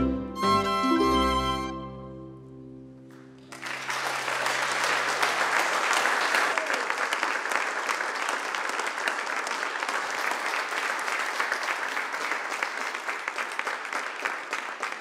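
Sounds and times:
audience applauding: 3.1s - 15.0s.

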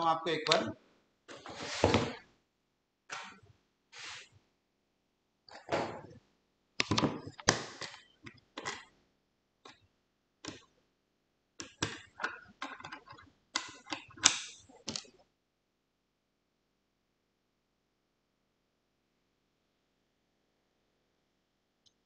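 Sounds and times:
hardware clicks and knocks: 11.6s - 15.2s.

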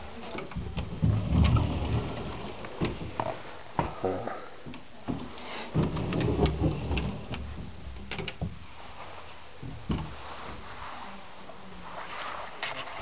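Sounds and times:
sharp clicks and knocks: 4.7s - 8.7s
footsteps: 5.0s - 13.0s
thump: 9.6s - 10.7s.

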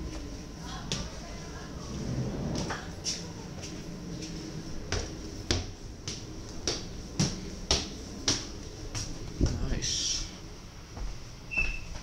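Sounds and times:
low steady rumble: 0.0s - 11.5s
footsteps on hard floor: 3.6s - 9.6s, 10.9s - 11.2s.

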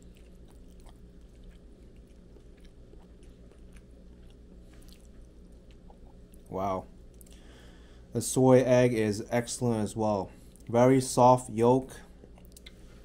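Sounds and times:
person chewing: 0.0s - 7.5s, 12.2s - 13.0s
steady low hum: 0.0s - 13.0s
soft mouth clicks: 12.4s - 12.8s.

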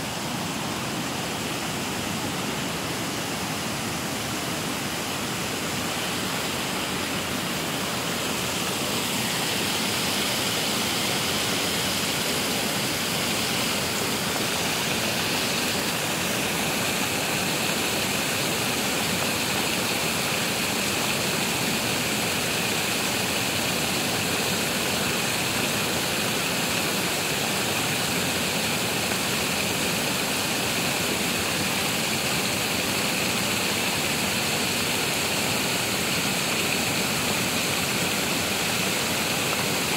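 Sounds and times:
water rushing over weir: 0.0s - 39.9s.

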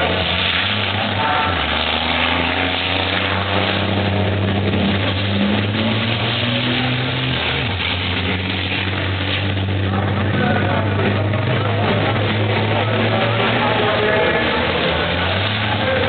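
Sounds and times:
racing truck engines droning: 0.0s - 16.0s.

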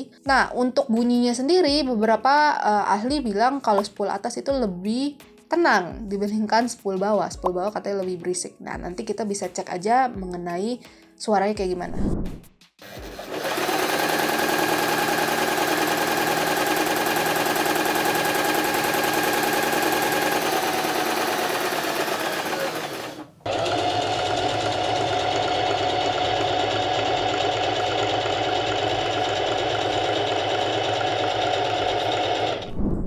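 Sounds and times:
sewing machine running: 12.8s - 32.7s
sewing machine stitching fabric: 12.8s - 32.7s.

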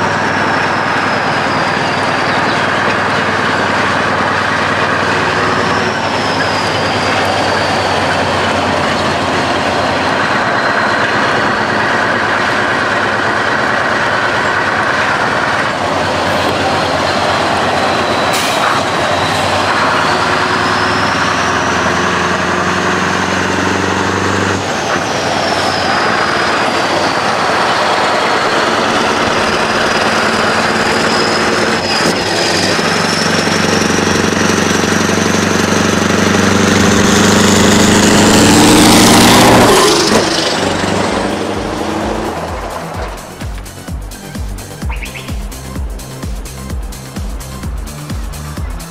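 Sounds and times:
diesel truck engine rumbling: 0.0s - 48.9s
brief sharp sound: 44.8s - 45.6s
high thin whistle: 44.8s - 45.6s.

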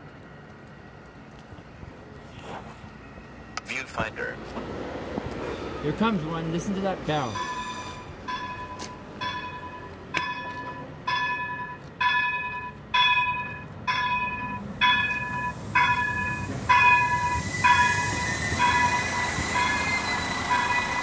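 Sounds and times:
train pulling in: 0.0s - 21.0s
electronic warning bell pinging: 7.3s - 21.0s.

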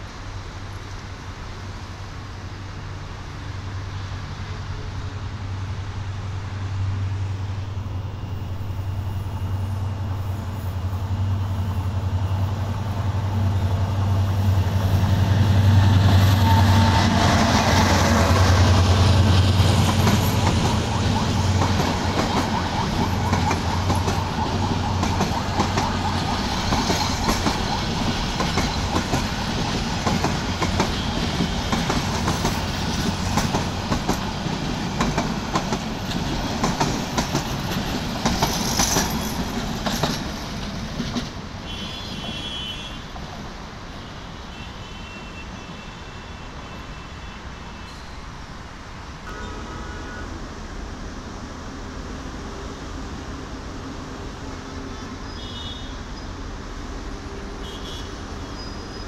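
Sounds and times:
train wheels clattering over rail joints: 19.1s - 41.5s.

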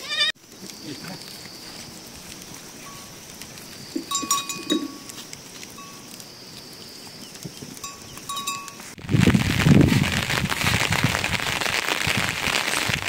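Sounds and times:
goat bells clinking: 0.8s - 6.7s, 7.7s - 9.0s.

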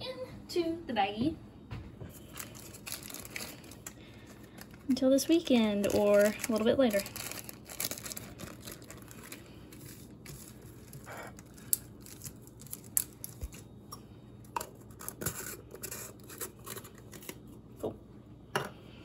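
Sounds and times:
plastic bag rustling: 2.1s - 13.7s.

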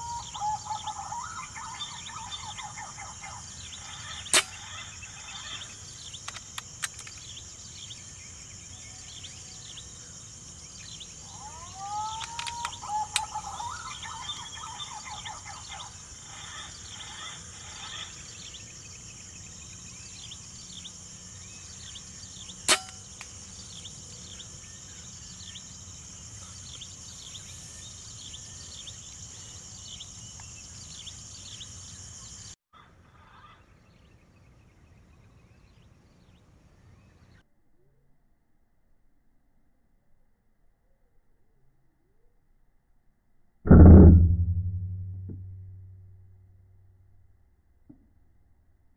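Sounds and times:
rising whistled bird calls: 0.0s - 6.2s, 10.7s - 18.7s
small bird chirps: 0.0s - 32.6s
air rifle shot: 4.3s - 4.8s, 22.7s - 23.1s.

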